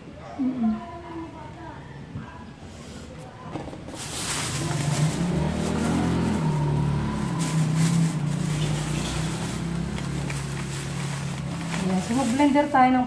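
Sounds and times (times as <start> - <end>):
engine running: 4.1 - 12.4.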